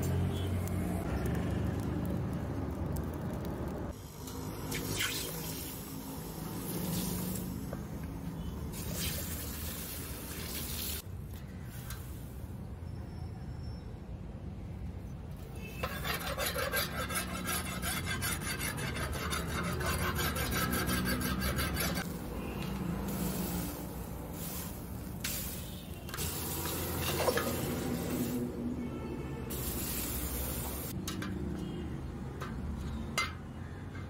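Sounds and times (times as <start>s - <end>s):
rasping scrape along steel: 15.7s - 22.1s.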